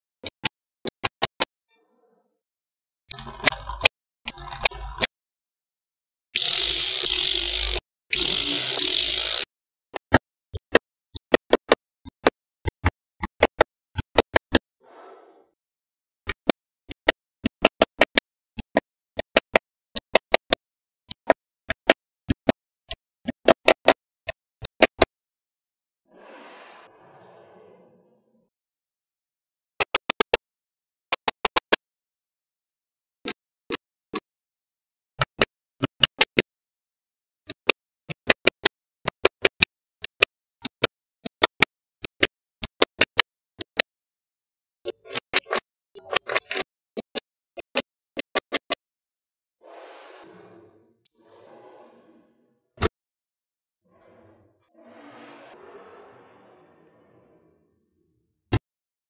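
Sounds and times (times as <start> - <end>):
magnetic balls clicking: 6.4 - 14.5, 44.9 - 48.8
magnetic balls snapping together: 45.0 - 48.8.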